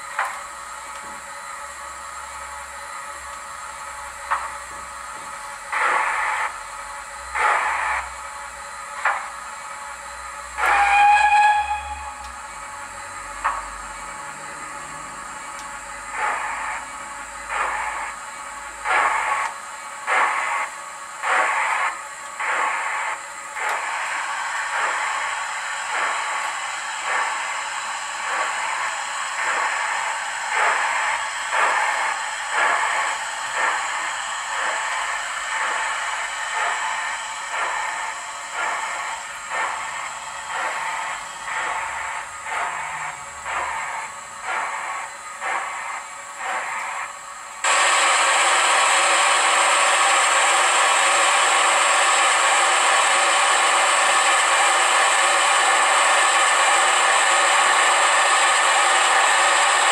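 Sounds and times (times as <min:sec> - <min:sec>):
constant steam hiss: 0:00.0 - 0:59.9
steam exhaust chuffs: 0:00.0 - 0:59.9
steam whistle blast: 0:10.5 - 0:12.4.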